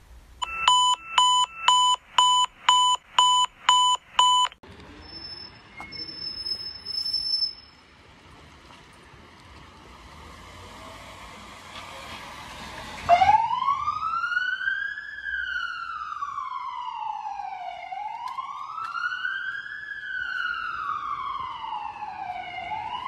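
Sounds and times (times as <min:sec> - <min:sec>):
quiet street background: 0:00.0 - 0:23.0
electronic alert beeps: 0:00.4 - 0:07.7.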